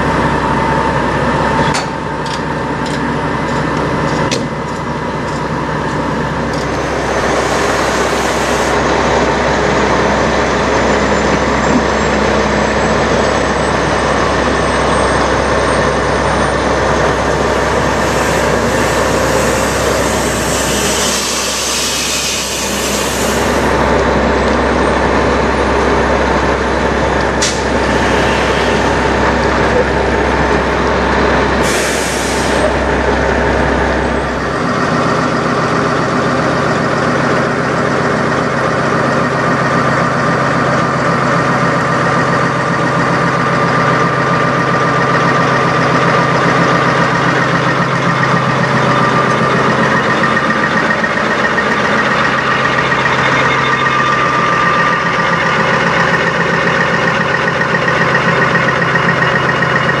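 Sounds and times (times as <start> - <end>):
diesel truck engines idling: 0.0 - 60.0
air hissing: 6.4 - 9.3, 16.6 - 23.8, 27.3 - 30.8, 31.5 - 33.0.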